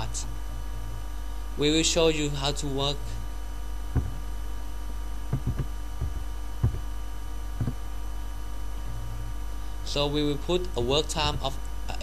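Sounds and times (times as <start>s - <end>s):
electrical mains hum: 0.0s - 12.0s
keyboard key taps: 4.0s - 4.2s, 5.3s - 6.9s, 7.6s - 7.8s.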